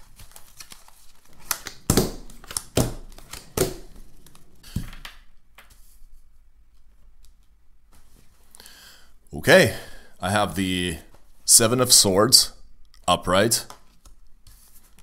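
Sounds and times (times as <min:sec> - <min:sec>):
cards slapping and rustling: 0:00.0 - 0:05.8, 0:13.7 - 0:15.0.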